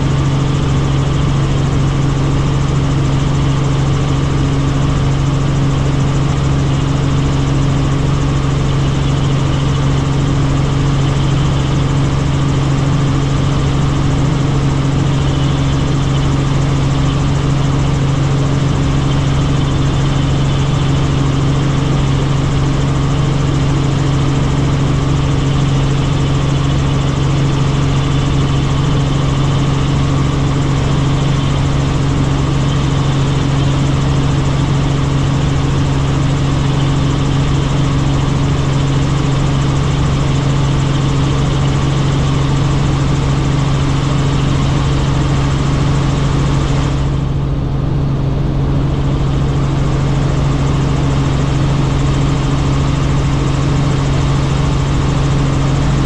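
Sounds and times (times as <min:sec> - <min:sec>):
helicopter in flight: 0:00.0 - 0:56.0.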